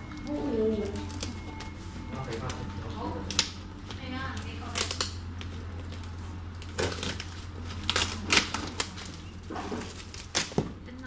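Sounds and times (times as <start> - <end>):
plastic bag crinkling: 0.0 - 10.6
steady low hum: 0.0 - 11.0.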